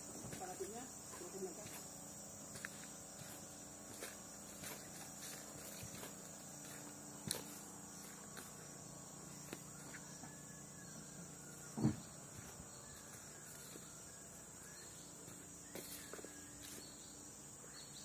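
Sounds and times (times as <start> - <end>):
high-pitched insect drone: 0.0 - 18.0.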